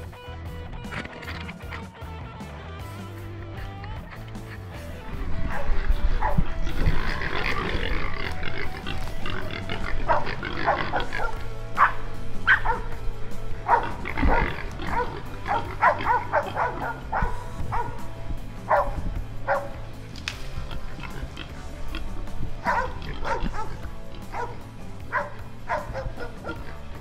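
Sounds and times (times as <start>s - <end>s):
hog squealing and grunting: 3.6s - 18.1s, 20.5s - 27.0s.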